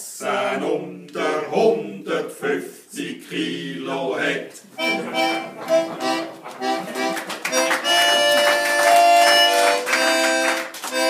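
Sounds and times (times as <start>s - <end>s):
instrumental music: 4.8s - 11.0s.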